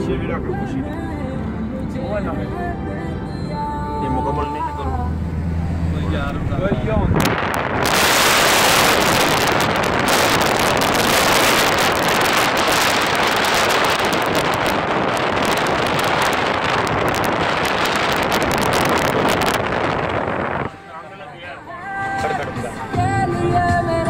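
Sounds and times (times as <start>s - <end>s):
car wind and road noise: 0.0s - 24.0s
wind buffeting microphone: 6.3s - 20.8s.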